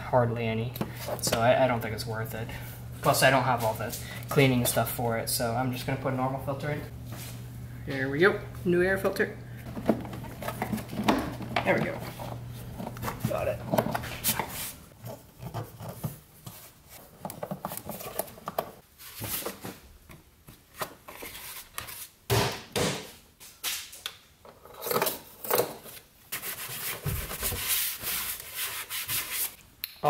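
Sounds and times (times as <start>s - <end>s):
hard plastic parts scraping and knocking: 9.6s - 18.8s.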